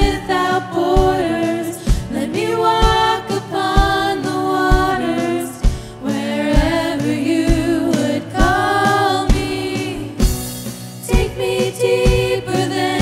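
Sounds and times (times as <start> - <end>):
voices singing over band: 0.0 - 10.4, 11.0 - 13.0.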